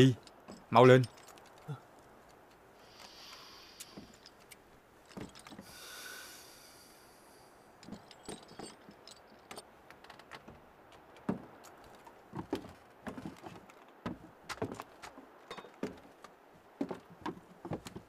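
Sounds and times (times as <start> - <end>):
jingling rattle: 7.7 - 9.8
faint clicks and knocks: 7.8 - 18.0
footsteps on wooden boards: 7.8 - 18.0.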